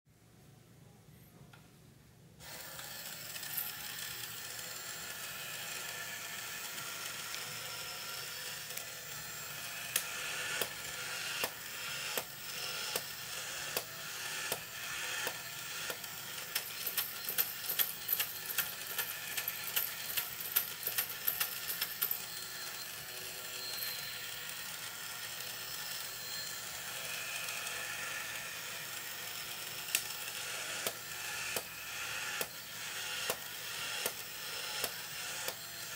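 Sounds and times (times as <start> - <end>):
toy motor and gears whirring: 2.4 - 35.9
mechanical clicks and rattles: 13.7 - 22.2.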